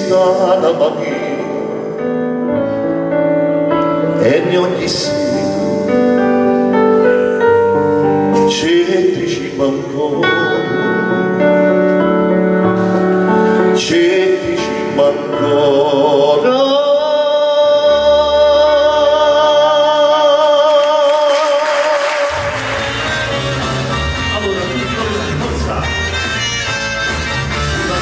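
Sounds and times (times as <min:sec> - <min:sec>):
people clapping: 0:20.4 - 0:23.9.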